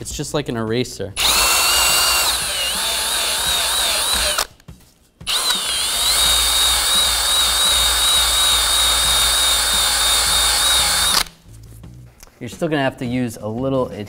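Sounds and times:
cordless drill motor whine: 0:01.2 - 0:04.5, 0:05.3 - 0:11.3.

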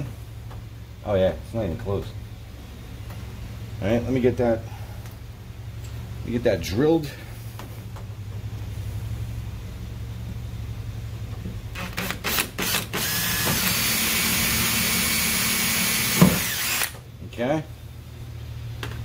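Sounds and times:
cordless drill drilling: 0:11.8 - 0:17.0.

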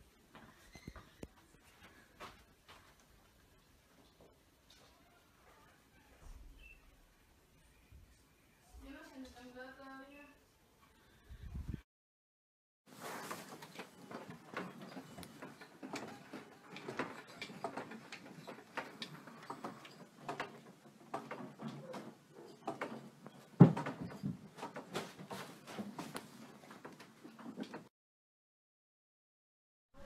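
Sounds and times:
room rattling and knocking: 0:13.2 - 0:27.9.

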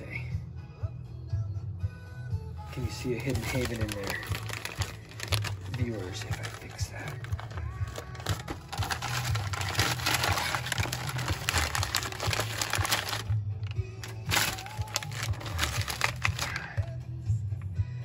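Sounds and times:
paper bag crinkling: 0:02.7 - 0:16.9.

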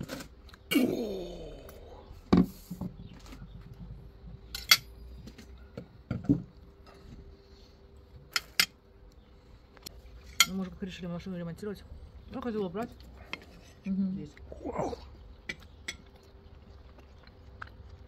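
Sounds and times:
dishes and utensils clinking: 0:04.5 - 0:05.5.

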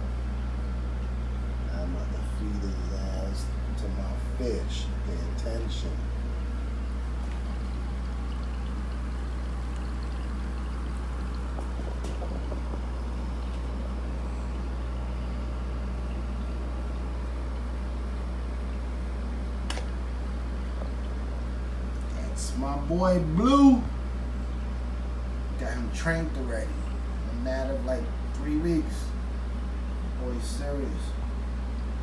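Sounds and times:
low motor hum: 0:00.0 - 0:32.0
water pouring and trickling: 0:07.0 - 0:19.1.

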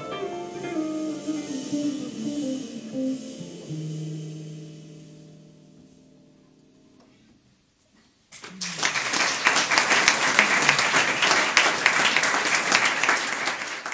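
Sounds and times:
audience applause: 0:08.3 - 0:13.9.

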